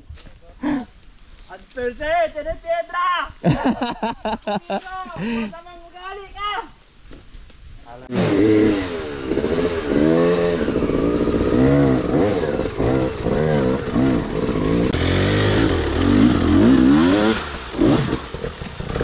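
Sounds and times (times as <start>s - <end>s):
motorcycle engine revving: 8.1s - 19.0s.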